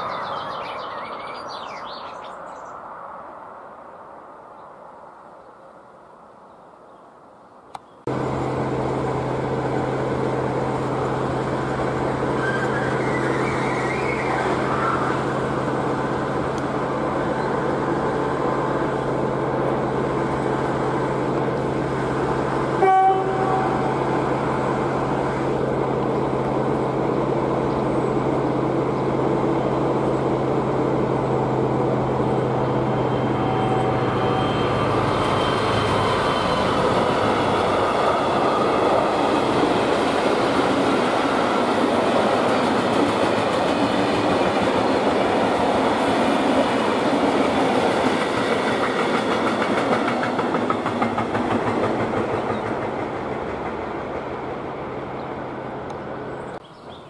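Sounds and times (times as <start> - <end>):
locomotive engine drone: 8.0 - 56.9
train wheels rolling over track: 8.1 - 57.0
train horn blast: 22.8 - 24.2, 32.8 - 36.6.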